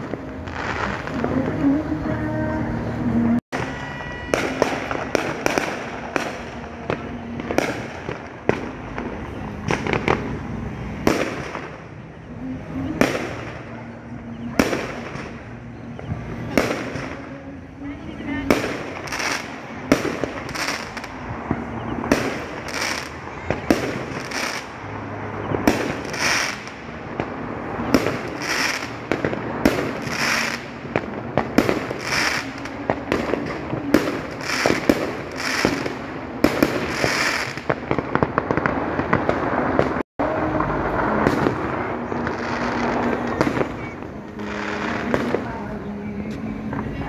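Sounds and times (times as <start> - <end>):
fireworks bangs: 0.0 - 47.0
fireworks crackling: 0.0 - 47.0.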